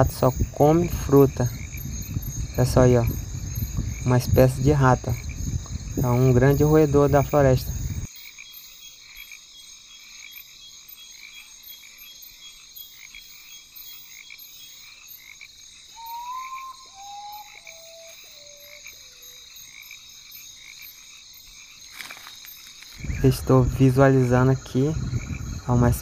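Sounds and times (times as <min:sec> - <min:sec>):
crickets and katydids trilling: 0:00.0 - 0:26.0
animal whistled call: 0:15.9 - 0:19.4.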